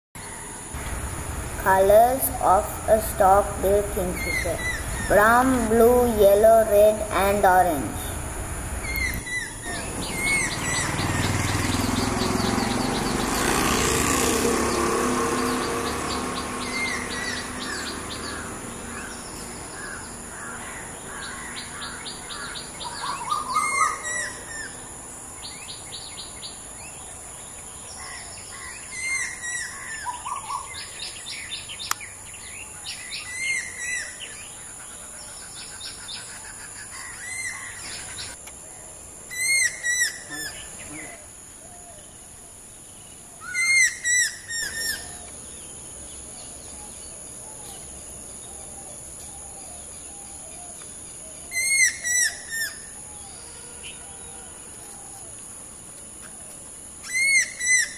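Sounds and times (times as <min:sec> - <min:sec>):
birds chirping: 0:00.2 - 0:42.1
kingfisher calling: 0:00.8 - 0:13.6.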